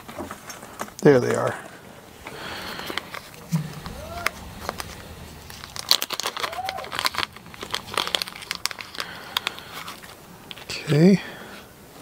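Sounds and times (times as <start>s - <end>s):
plastic bag crinkling: 2.3s - 11.0s.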